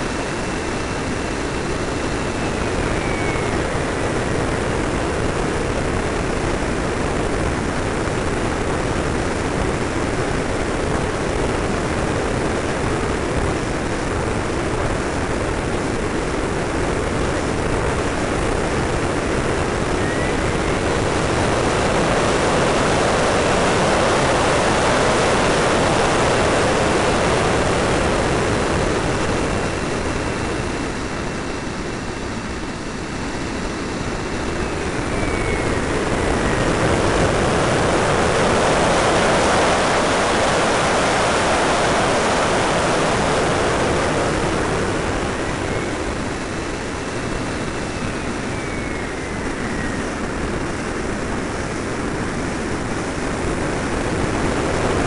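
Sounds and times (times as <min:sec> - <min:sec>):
airflow rush and motor noise: 0:00.0 - 0:55.0
faint high whine: 0:00.0 - 0:55.0.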